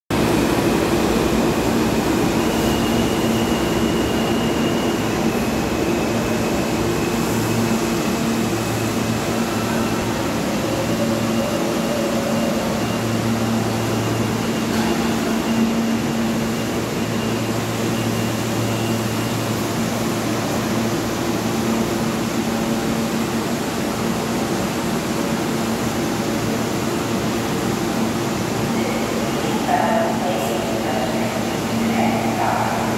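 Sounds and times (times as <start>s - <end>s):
subway train rumbling: 0.1s - 32.9s.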